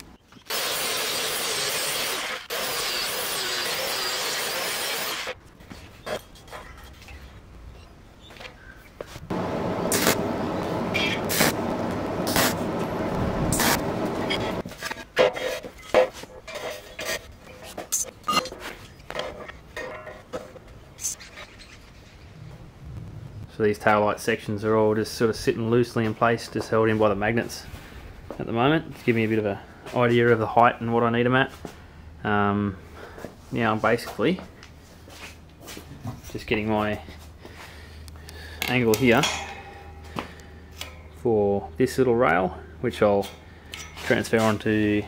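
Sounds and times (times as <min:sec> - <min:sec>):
angle grinder grinding steel: 0:00.5 - 0:05.4
steel tubing clanking on metal: 0:38.9 - 0:40.1.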